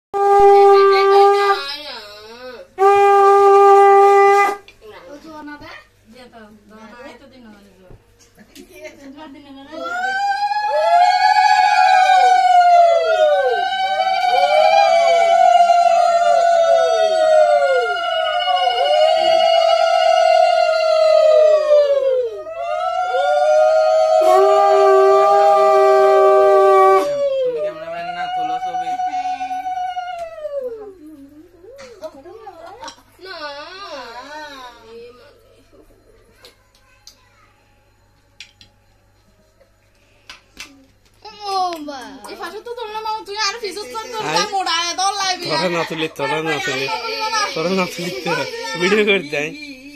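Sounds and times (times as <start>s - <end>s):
conch shell blasts: 0.2s - 1.6s, 2.8s - 4.6s
conch shells blown: 0.2s - 1.7s, 2.8s - 4.7s, 23.1s - 27.3s
lower breathy conch note: 23.1s - 27.3s.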